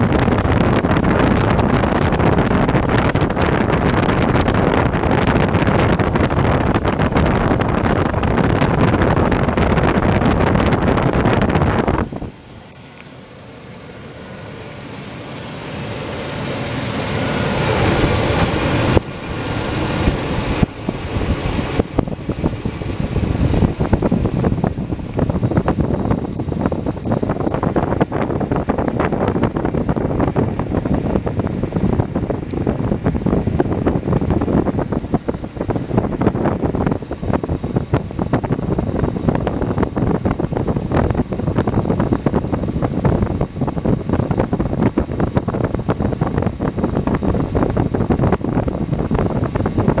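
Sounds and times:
truck engine idling: 0:07.1 - 0:32.0.

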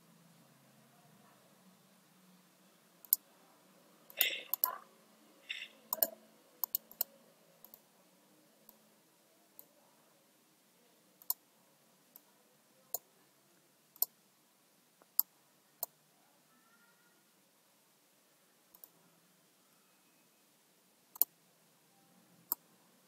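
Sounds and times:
computer mouse clicking: 0:03.0 - 0:03.2, 0:04.1 - 0:04.8, 0:05.5 - 0:07.8, 0:11.2 - 0:11.4, 0:18.7 - 0:19.0.

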